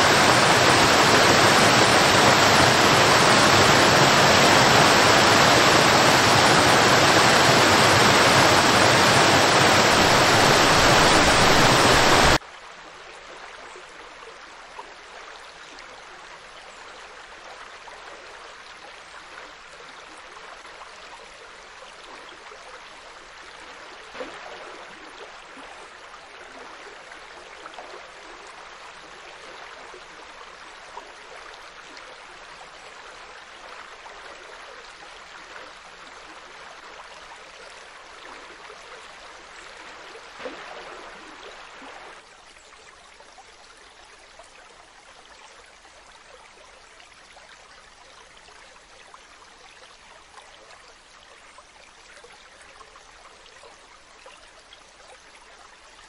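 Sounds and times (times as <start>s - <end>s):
waterfall cascading over rock: 0.0s - 12.4s
river flowing and gurgling: 0.0s - 56.0s
small water splashes: 33.5s - 45.2s.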